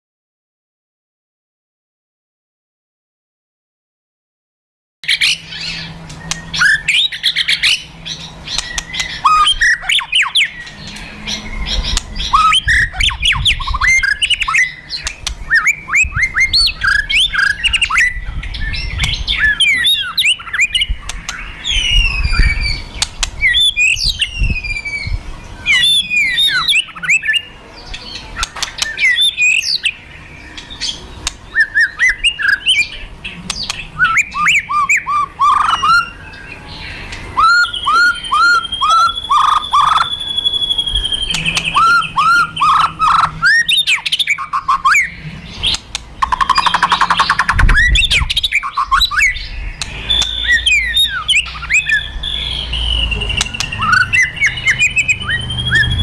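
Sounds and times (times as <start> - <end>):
bird crackling clicks: 15.0 - 15.4, 28.4 - 29.0, 45.7 - 47.5
bird whistle sweeps: 37.4 - 44.0
bird loud whistled bursts: 37.4 - 45.1, 46.4 - 56.0.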